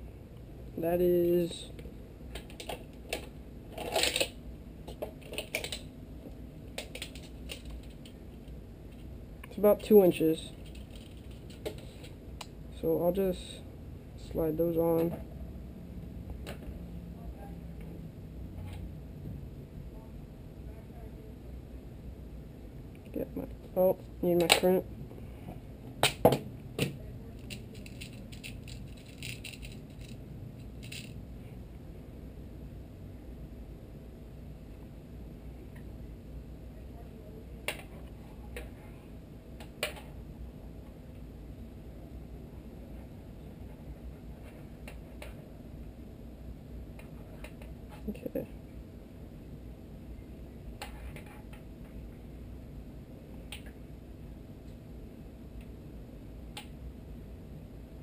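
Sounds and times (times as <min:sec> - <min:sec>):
hands handling small objects: 0:02.4 - 0:05.9, 0:06.7 - 0:09.1, 0:09.8 - 0:12.2, 0:27.4 - 0:31.2
metal crimps rattling in plastic box: 0:05.2 - 0:05.8, 0:06.8 - 0:08.1, 0:10.5 - 0:11.8, 0:27.4 - 0:30.2, 0:30.8 - 0:31.2.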